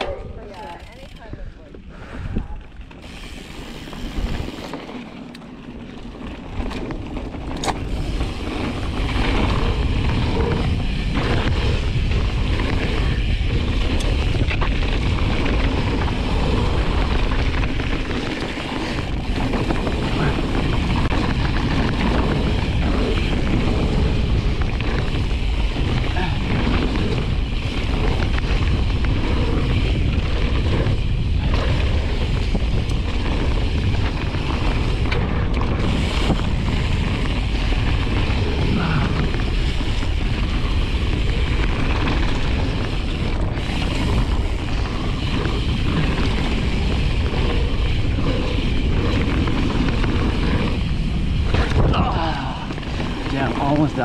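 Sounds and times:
wind rush on microphone: 0:00.0 - 0:04.8, 0:06.4 - 0:54.0
mountain bike riding noise: 0:00.0 - 0:54.0.

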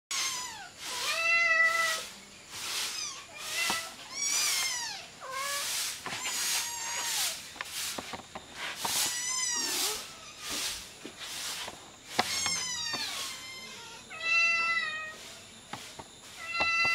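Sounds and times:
kittens meowing: 0:00.1 - 0:02.1, 0:02.8 - 0:07.4, 0:08.9 - 0:10.8, 0:12.1 - 0:15.3, 0:16.4 - 0:16.9.

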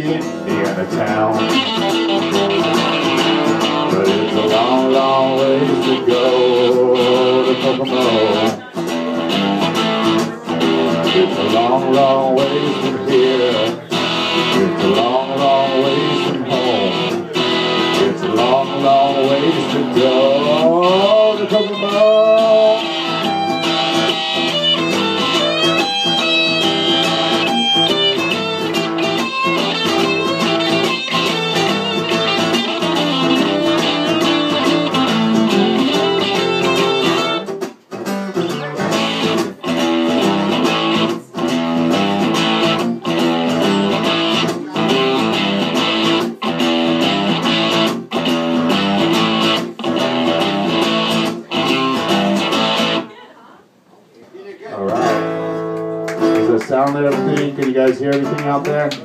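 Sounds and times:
two guitars playing: 0:00.0 - 0:53.4, 0:54.8 - 0:59.0.

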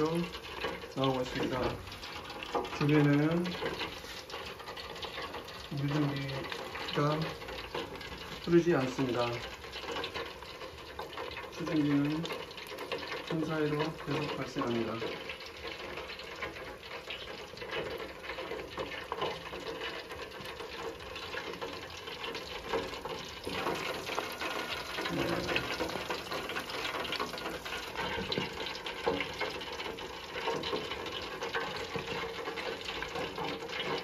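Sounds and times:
oil bubbling and crackling: 0:00.0 - 0:34.0
steam venting: 0:22.6 - 0:30.4.

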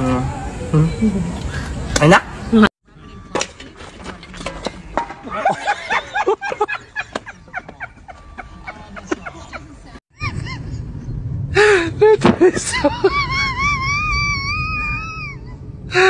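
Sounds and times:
excited cries and laughter: 0:05.2 - 0:16.0.

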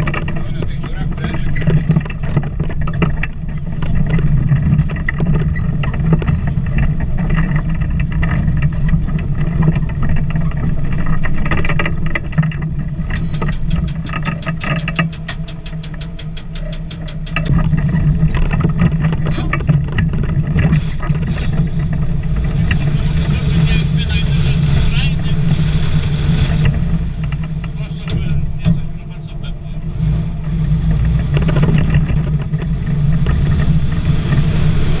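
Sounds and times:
truck cab rattling and knocking: 0:00.0 - 0:35.0
truck engine running: 0:00.0 - 0:35.0.

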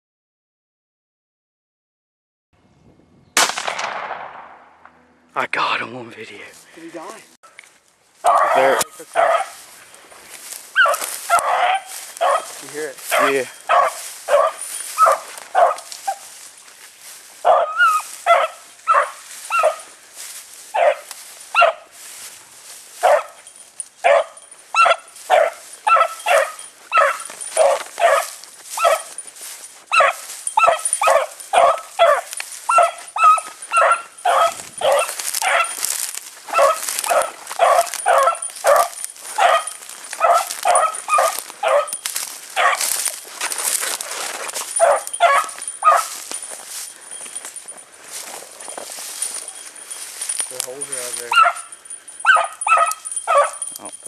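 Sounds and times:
hound baying yelps: 0:08.2 - 0:09.8, 0:10.4 - 0:16.4, 0:17.3 - 0:22.0, 0:23.0 - 0:53.8.

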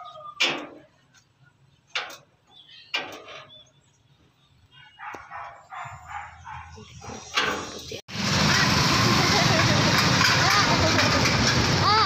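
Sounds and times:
dog barking: 0:04.8 - 0:07.3.

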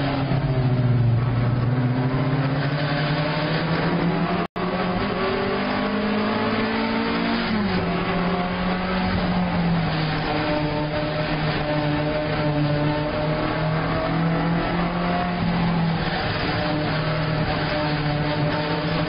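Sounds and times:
race car engine revving: 0:00.0 - 0:19.0.

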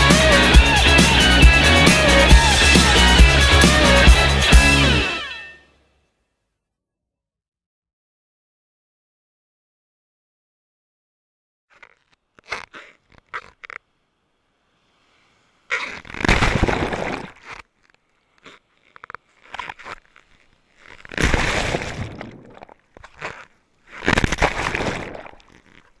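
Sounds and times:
small water splashes: 0:16.2 - 0:18.4, 0:20.2 - 0:26.0.

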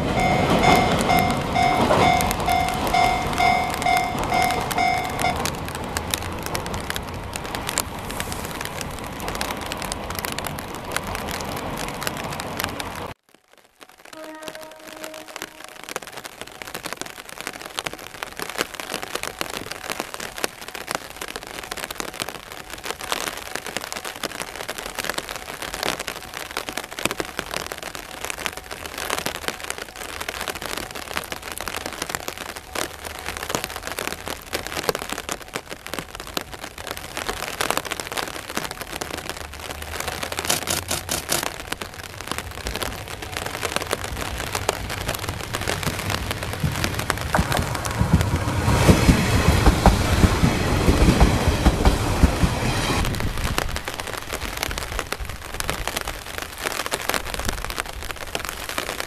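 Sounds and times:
diesel railcar engine rumble: 0:00.0 - 0:13.1, 0:38.3 - 0:54.3
steady rain falling: 0:00.0 - 0:59.0.

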